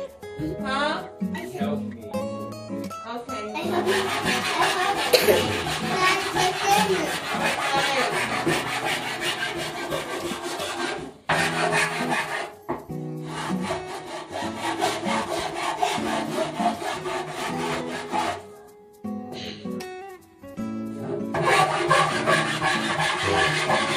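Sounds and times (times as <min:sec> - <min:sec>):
handsaw cutting through board: 0:03.6 - 0:12.6, 0:13.2 - 0:18.5, 0:21.3 - 0:23.9.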